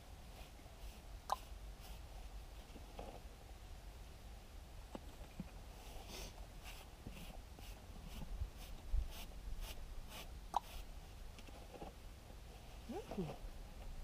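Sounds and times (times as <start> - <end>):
brush swishing on horse coat: 6.1 - 10.9.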